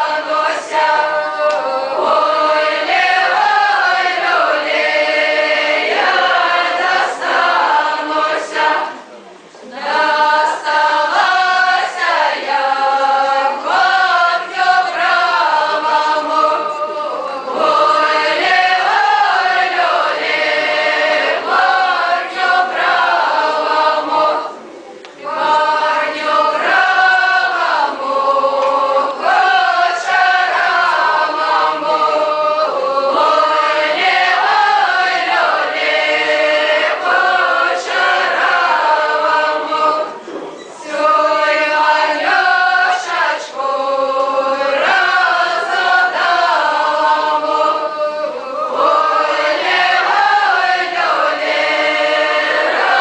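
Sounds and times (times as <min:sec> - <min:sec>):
group singing folk song: 0:00.0 - 0:53.0.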